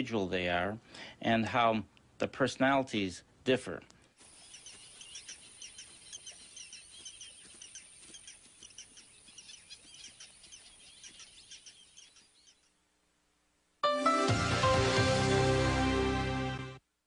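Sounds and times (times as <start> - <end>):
small birds chirping: 3.8 - 12.9.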